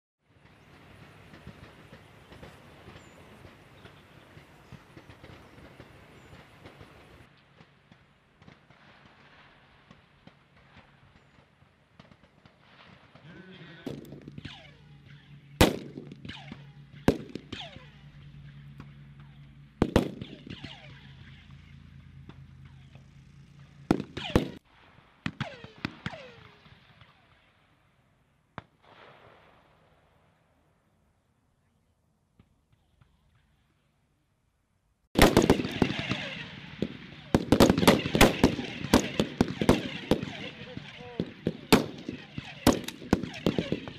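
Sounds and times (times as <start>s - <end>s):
rifle shots with echo: 0.4s - 21.5s, 23.8s - 27.5s, 35.2s - 43.9s.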